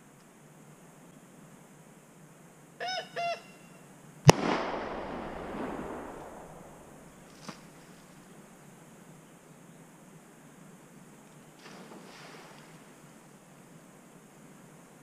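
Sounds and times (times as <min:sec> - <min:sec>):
gunshot with echo: 0:04.3 - 0:07.2.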